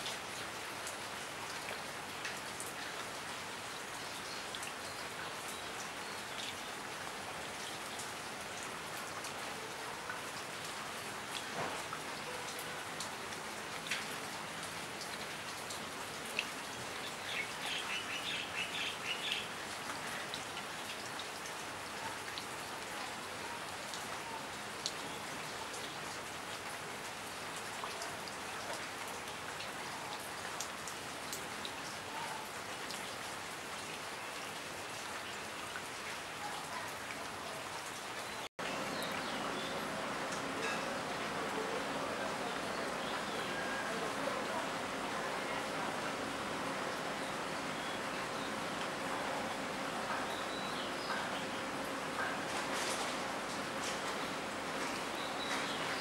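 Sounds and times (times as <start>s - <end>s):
steady rain: 0.0s - 56.0s
drops ticking on wet leaves: 38.6s - 45.1s, 45.7s - 56.0s.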